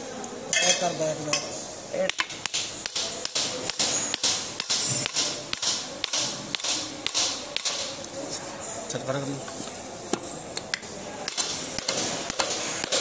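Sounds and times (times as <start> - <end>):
hammer striking steel: 2.1 - 8.0, 11.3 - 13.0.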